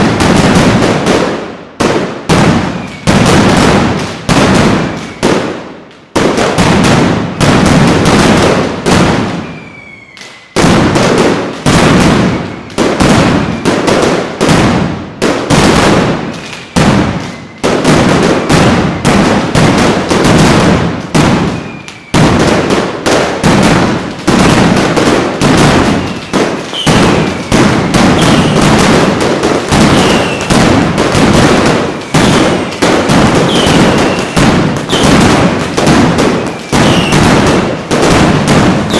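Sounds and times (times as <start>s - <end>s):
firecrackers banging: 0.0s - 38.9s
whistles falling in pitch: 9.4s - 10.6s, 16.6s - 17.6s, 21.5s - 22.2s.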